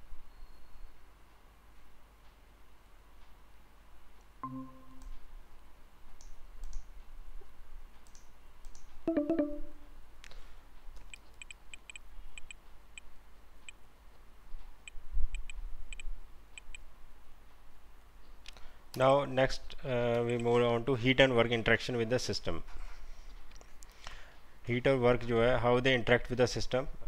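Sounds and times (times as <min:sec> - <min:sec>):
short pitched tone: 0:04.4 - 0:05.0, 0:09.1 - 0:09.9
computer mouse clicking: 0:06.2 - 0:06.9, 0:08.0 - 0:09.0.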